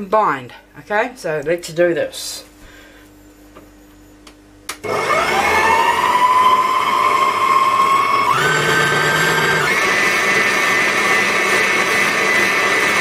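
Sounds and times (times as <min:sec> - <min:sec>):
mixer motor whine: 0:04.7 - 0:13.0.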